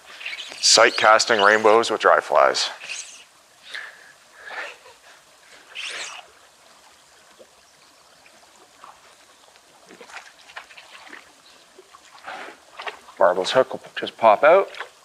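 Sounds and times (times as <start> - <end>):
water churning: 0.0 - 15.0
fish splashing in water: 9.7 - 13.2.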